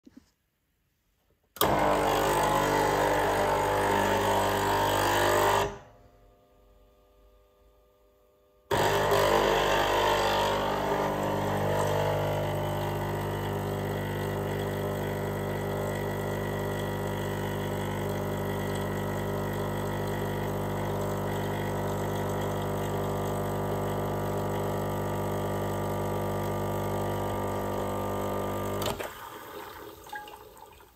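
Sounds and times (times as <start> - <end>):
espresso machine pump humming: 1.6 - 5.7, 8.7 - 29.1.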